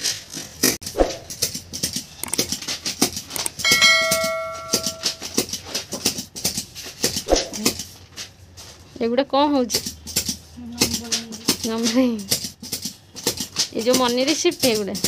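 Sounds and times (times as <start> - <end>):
bell-like ringing tone: 3.5 - 5.3.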